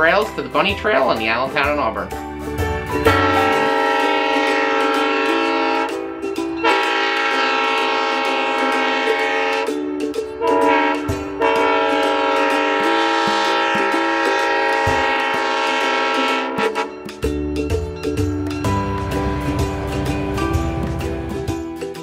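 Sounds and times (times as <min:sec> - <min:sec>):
locomotive air horn blasts: 0:03.0 - 0:06.0, 0:06.6 - 0:09.8, 0:10.4 - 0:17.0.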